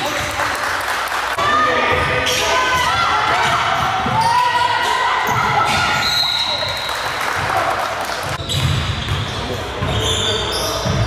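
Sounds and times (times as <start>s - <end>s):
sneaker squeaks: 1.9s - 7.2s, 8.3s - 11.0s.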